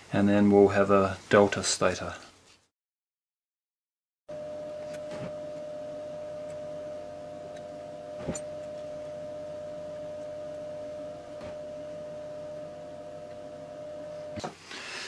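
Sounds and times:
steady hum: 4.3 - 15.0.

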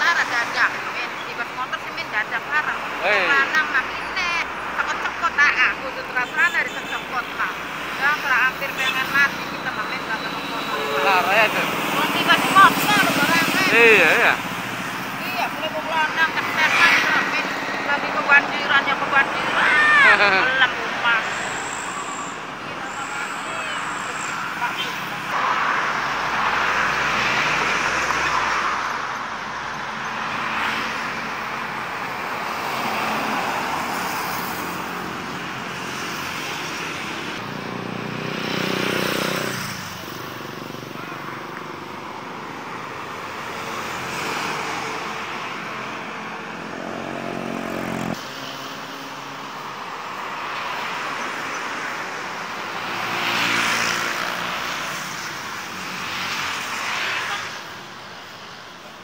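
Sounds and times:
road traffic passing: 0.0 - 59.0.

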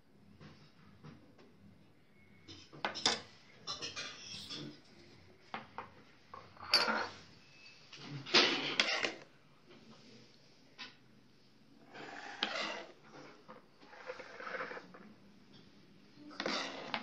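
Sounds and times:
utensil clinking and scraping pot: 2.5 - 4.9, 6.4 - 7.2, 8.4 - 9.2, 12.0 - 14.9, 16.3 - 17.0.

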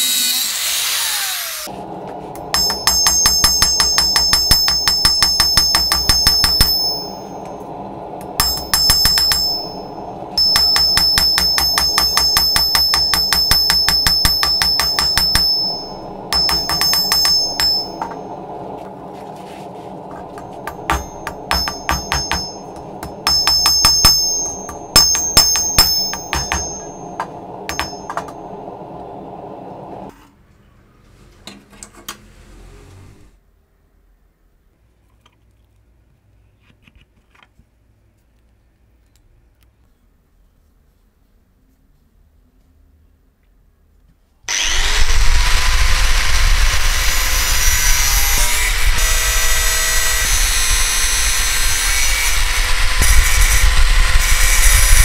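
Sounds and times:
hammer blows ringing on anvil: 2.5 - 7.8, 8.4 - 18.6, 20.3 - 28.6.

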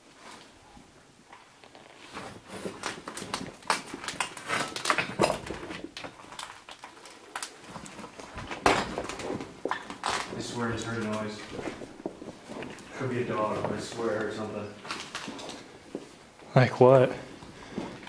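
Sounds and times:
footsteps on debris: 2.2 - 16.3.

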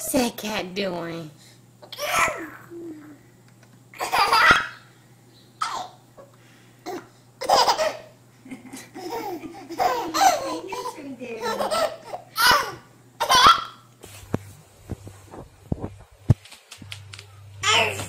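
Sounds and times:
baby laughing: 4.0 - 4.8, 6.9 - 13.9.

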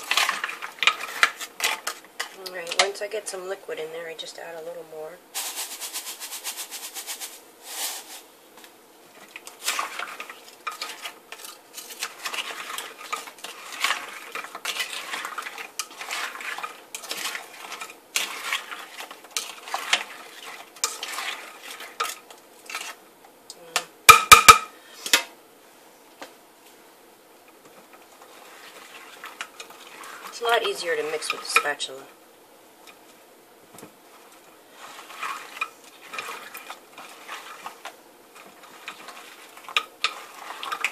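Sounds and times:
plastic spoon scraping glass bowl: 9.6 - 22.1, 34.7 - 37.8, 38.4 - 40.9.

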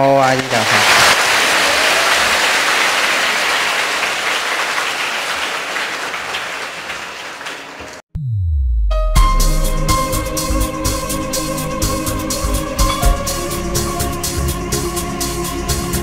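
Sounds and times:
crowd applauding: 0.0 - 8.0
music: 8.7 - 16.0.

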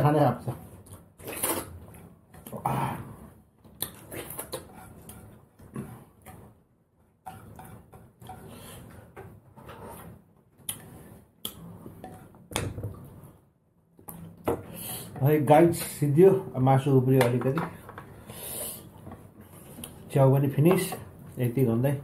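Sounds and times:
chewing and mouth sounds: 3.6 - 5.1.

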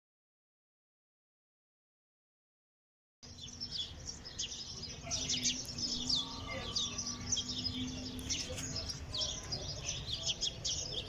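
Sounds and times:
birds chirping: 3.2 - 11.0.

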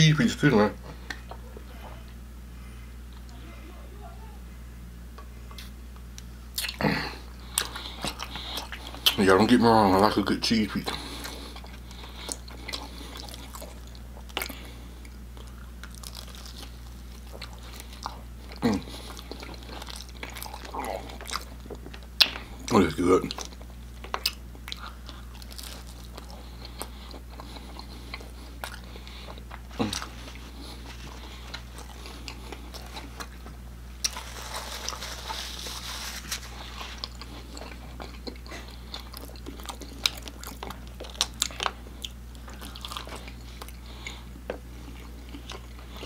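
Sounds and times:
steady low hum: 0.0 - 46.0
person chewing and biting food: 5.5 - 9.2, 10.9 - 46.0
paper napkin rustling: 34.1 - 37.1.

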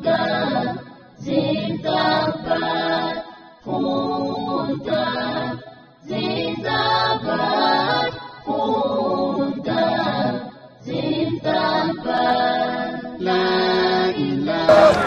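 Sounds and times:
group singing in unison: 9.6 - 15.0.

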